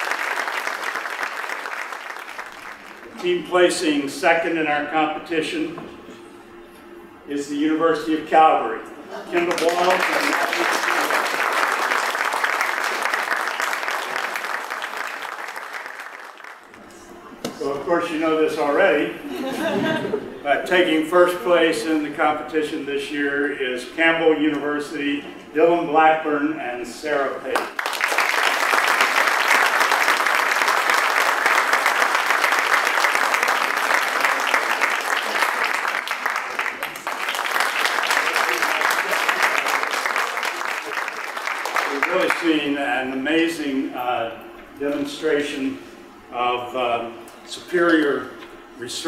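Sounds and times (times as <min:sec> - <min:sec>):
audience applauding: 0:00.0 - 0:03.2, 0:09.3 - 0:16.8, 0:27.6 - 0:42.6.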